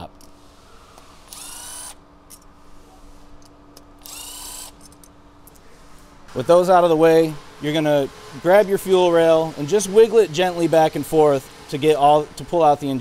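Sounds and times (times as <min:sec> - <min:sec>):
electric ratchet motor whine: 0:01.3 - 0:02.0, 0:04.0 - 0:04.8.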